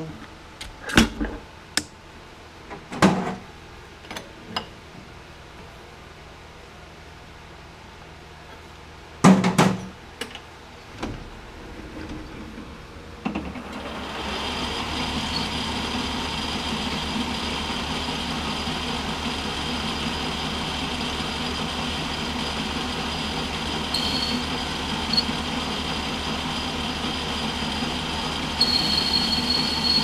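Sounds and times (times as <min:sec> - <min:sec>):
lathe running with whine: 0:13.6 - 0:30.0.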